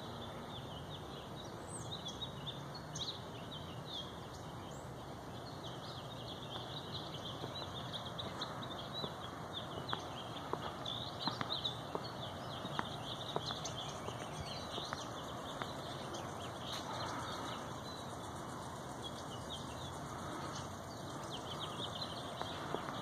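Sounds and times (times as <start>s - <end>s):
small birds chirping: 0.0s - 23.0s
footsteps on pavement: 6.4s - 18.0s, 19.1s - 23.0s.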